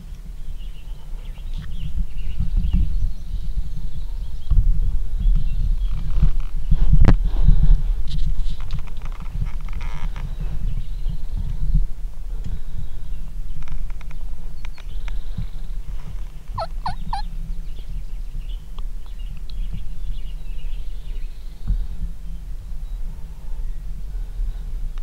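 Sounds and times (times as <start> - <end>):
steady low rumble: 15.2 - 18.1
wild turkey gobbling: 16.6 - 17.2.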